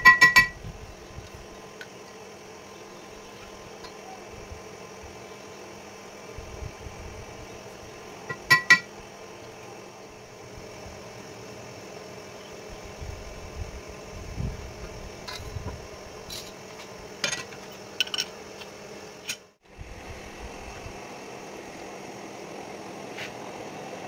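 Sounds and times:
steady low hum: 0.0s - 24.0s
metal tools clinking: 17.2s - 18.3s.

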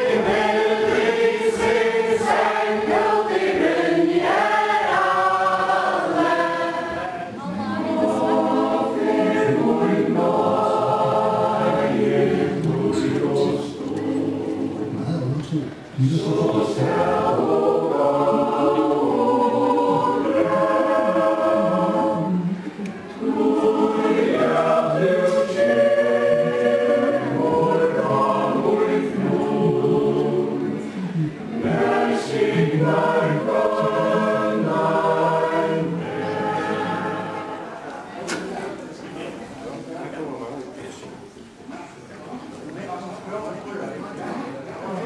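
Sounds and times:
mixed choir singing: 0.0s - 15.2s, 16.0s - 38.5s.

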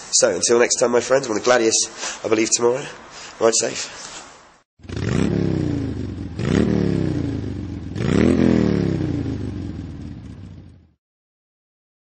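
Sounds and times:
motorcycle engine revving: 4.8s - 11.0s.

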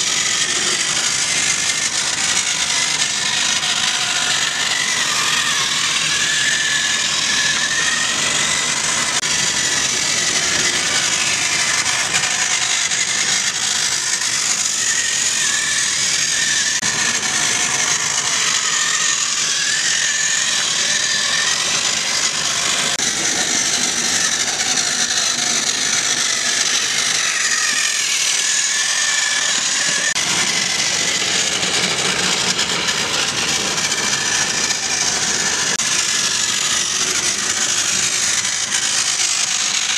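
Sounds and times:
toy tram motor whirring: 0.0s - 39.9s.

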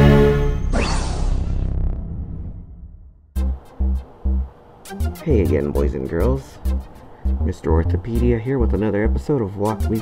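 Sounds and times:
electronic dance beat: 3.4s - 5.2s.

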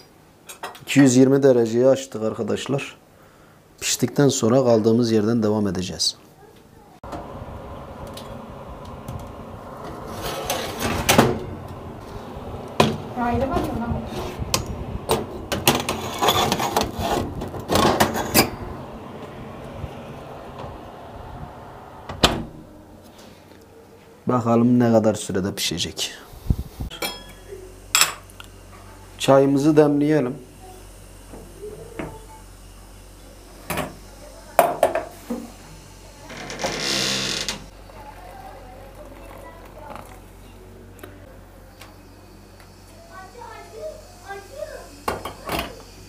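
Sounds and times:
metal teapot clanking: 26.9s - 27.4s.

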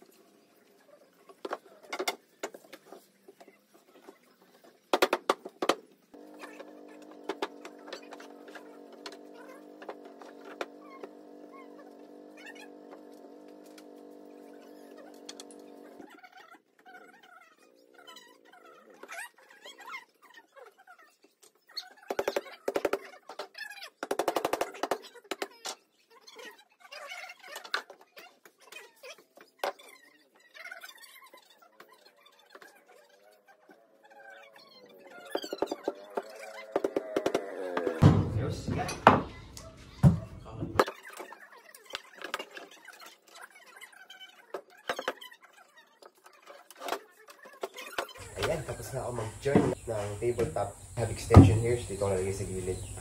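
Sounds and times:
wooden boards knocking: 4.9s - 11.3s, 35.4s - 39.3s.

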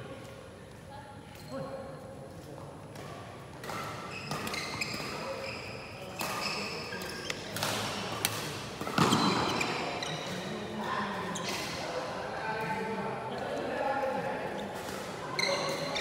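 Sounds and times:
shoes squeaking on court floor: 3.0s - 11.8s, 14.5s - 16.0s
rackets hitting shuttlecock: 6.1s - 10.4s.

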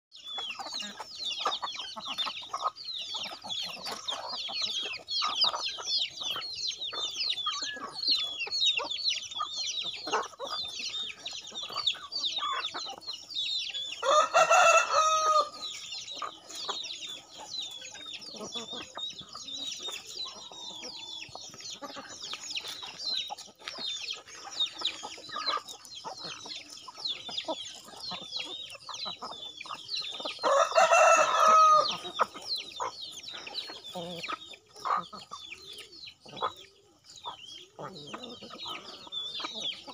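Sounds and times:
chickens clucking: 0.1s - 39.9s
chicks peeping: 0.1s - 39.9s
rooster crowing: 14.0s - 15.6s, 30.4s - 32.0s.

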